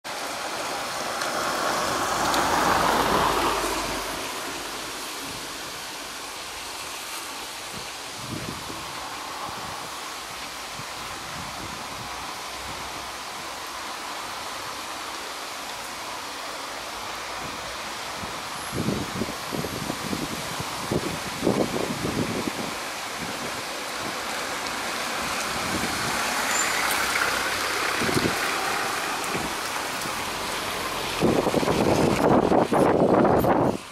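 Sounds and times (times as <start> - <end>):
car tyres hissing on wet street: 0.0 - 33.9
rain: 0.0 - 33.9
wind rushing through trees: 0.0 - 33.9.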